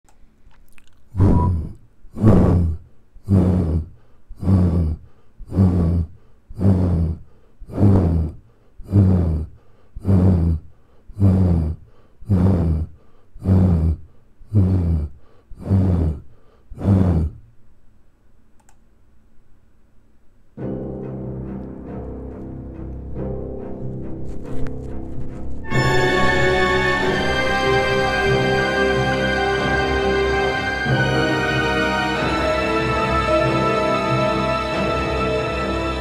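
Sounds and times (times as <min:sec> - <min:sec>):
deep breath-like pulses: 0:01.1 - 0:17.4.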